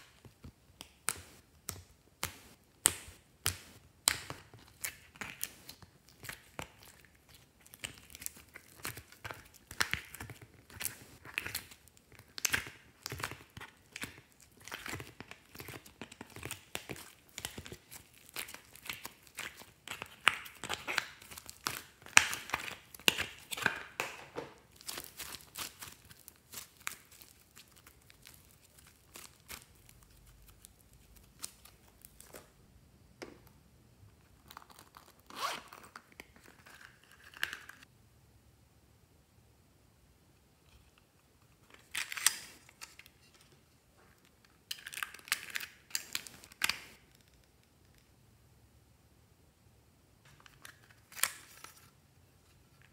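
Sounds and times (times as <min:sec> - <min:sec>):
plastic mould crinkling: 0:00.0 - 0:37.8.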